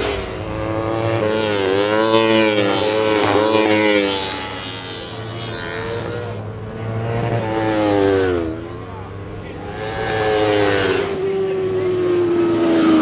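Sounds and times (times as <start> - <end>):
motorcycle engines revving: 0.0 - 13.0.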